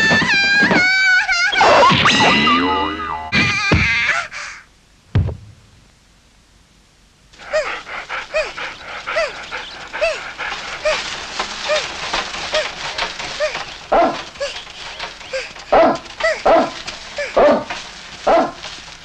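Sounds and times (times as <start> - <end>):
steady rustle: 7.0 - 19.0
large dog barking: 13.8 - 14.4, 15.7 - 18.6.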